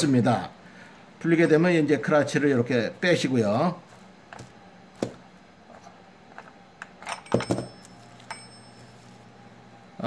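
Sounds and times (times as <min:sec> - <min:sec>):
metallic clicks and clinks: 0:07.0 - 0:08.8.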